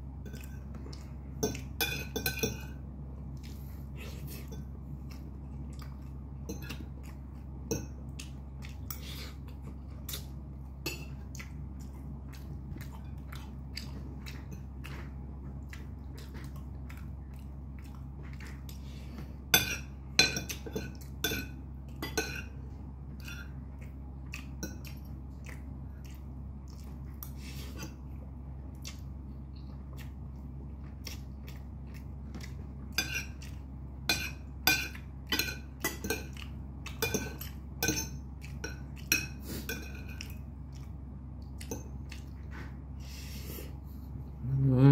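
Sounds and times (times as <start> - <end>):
person chewing: 0.0 - 43.8
cutlery clinking on a plate: 34.1 - 40.3.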